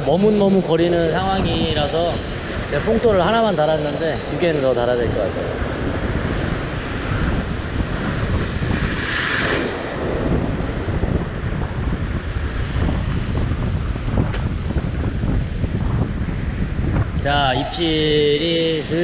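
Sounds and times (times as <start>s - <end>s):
wind buffeting microphone: 0.0s - 19.0s
surf washing over rocks: 5.0s - 14.2s.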